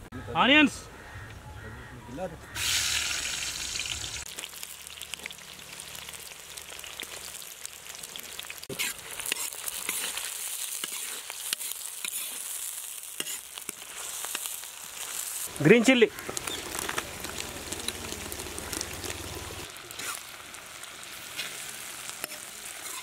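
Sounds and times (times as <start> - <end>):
onions sizzling in hot oil: 2.5 - 23.0
metal spatula scraping a pan: 8.7 - 15.2, 19.9 - 20.2, 22.1 - 23.0.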